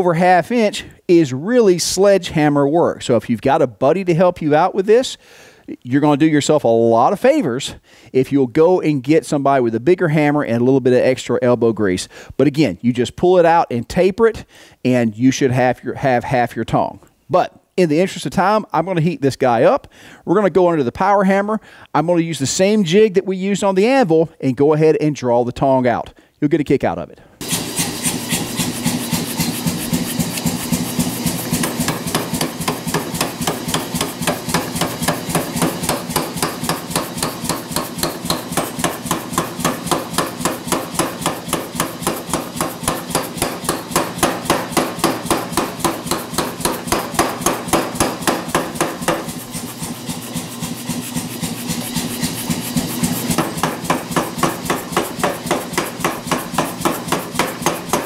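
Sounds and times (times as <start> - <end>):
power hammer striking hot steel: 27.4 - 58.0.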